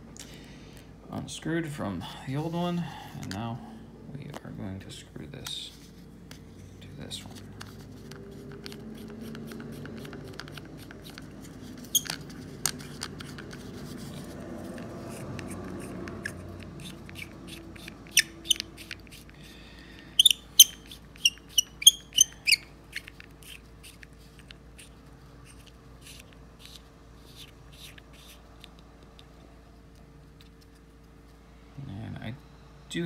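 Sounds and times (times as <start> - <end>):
squeaky clicks of lens threads: 7.6 - 13.6, 15.2 - 19.4, 20.0 - 29.3.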